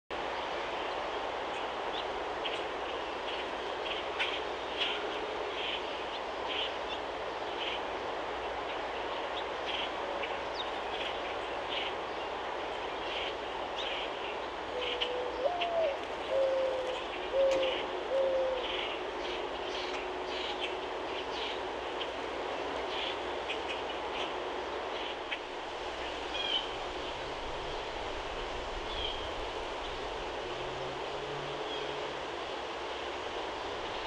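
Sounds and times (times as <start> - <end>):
dove cooing: 14.7 - 18.9.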